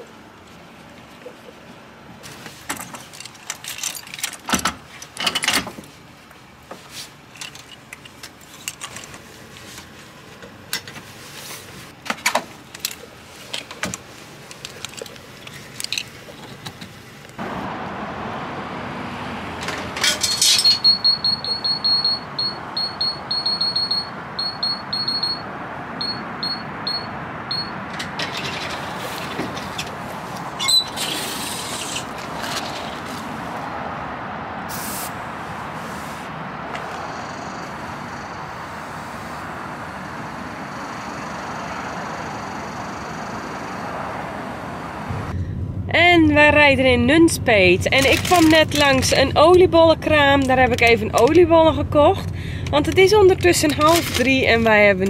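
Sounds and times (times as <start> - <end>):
metal clicks and clanks: 2.7 - 5.9, 7.3 - 9.7, 12.0 - 16.9, 19.6 - 20.9, 27.8 - 30.0, 47.9 - 49.7, 52.2 - 55.0.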